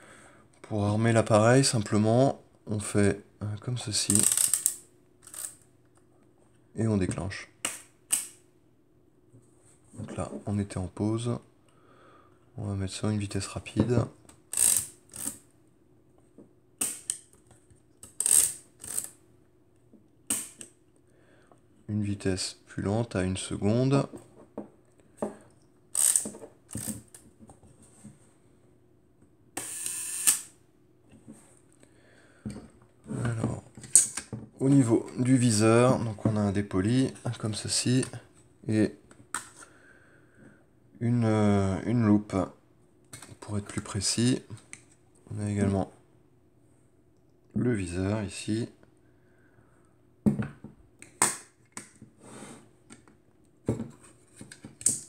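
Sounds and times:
camera shutter whir and click: 0:04.1 - 0:05.6, 0:14.5 - 0:15.4, 0:25.9 - 0:26.9, 0:29.6 - 0:30.6
camera crank ratcheting whir: 0:04.2 - 0:05.6, 0:14.5 - 0:15.4, 0:18.2 - 0:19.1, 0:25.9 - 0:27.0, 0:29.6 - 0:30.5.

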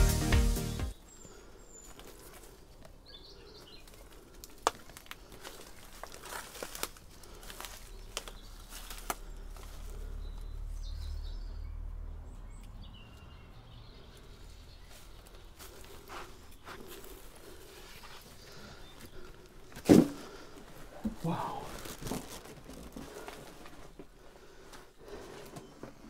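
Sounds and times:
birds chirping faintly: 0:00.0 - 0:26.0
footsteps crunching over rubble: 0:03.7 - 0:10.4, 0:14.7 - 0:26.0.

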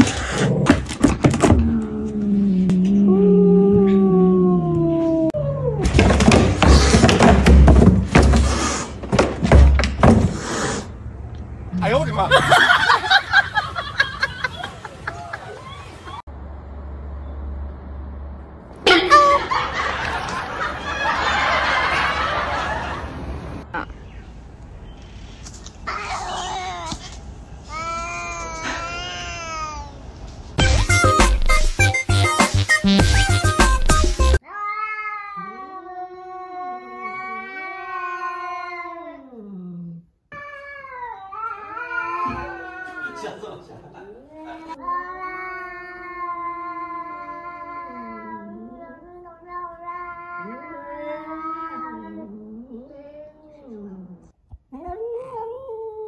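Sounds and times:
cat hissing: 0:10.3 - 0:11.0
cat yowling: 0:34.4 - 0:39.5, 0:40.3 - 0:43.4, 0:44.4 - 0:54.0.

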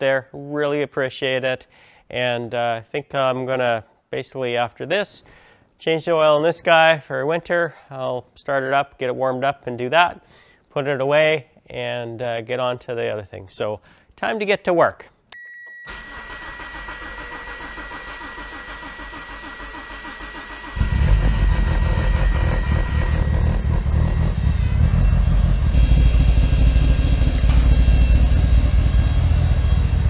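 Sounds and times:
car engine cranking: 0:15.9 - 0:30.0
car engine running loudly: 0:19.4 - 0:30.0.

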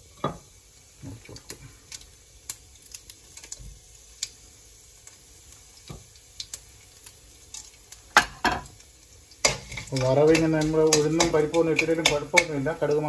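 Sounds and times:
spices popping in hot oil: 0:00.0 - 0:13.0.

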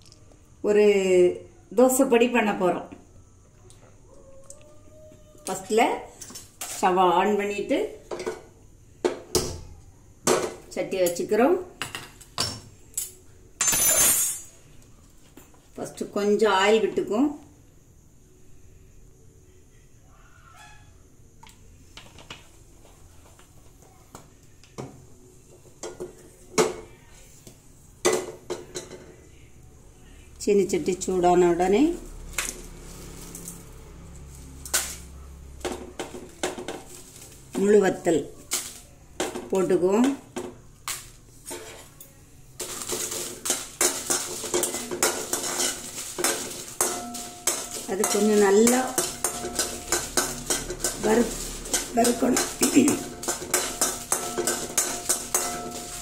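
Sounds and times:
utensils clinking on metal pan: 0:10.3 - 0:14.6, 0:41.4 - 0:56.0.

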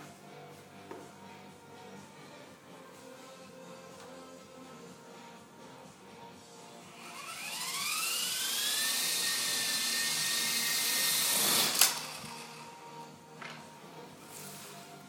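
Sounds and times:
rc helicopter motor whine: 0:07.0 - 0:12.8.

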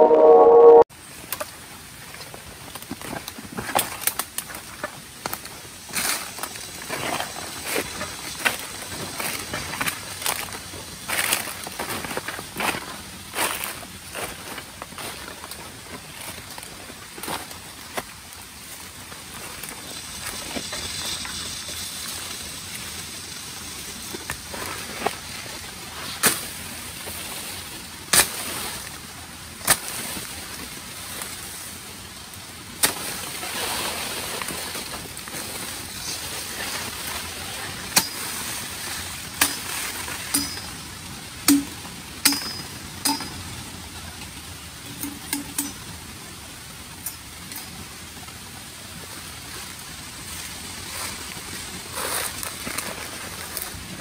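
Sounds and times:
steady background hiss: 0:00.0 - 0:54.0
machete chopping bamboo: 0:38.0 - 0:38.2, 0:39.4 - 0:40.7, 0:41.5 - 0:43.4.

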